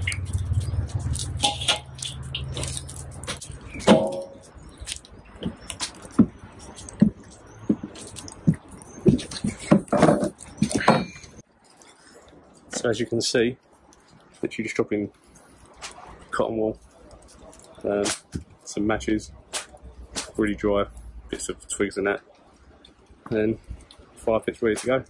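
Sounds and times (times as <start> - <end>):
fire crackling and snapping: 0.0 - 9.8.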